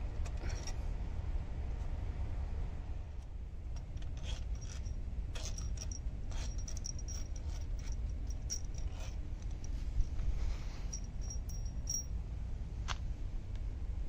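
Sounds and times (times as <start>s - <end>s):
metallic clinks of tool and bolts: 0.2s - 0.8s, 3.8s - 9.8s, 10.9s - 12.1s.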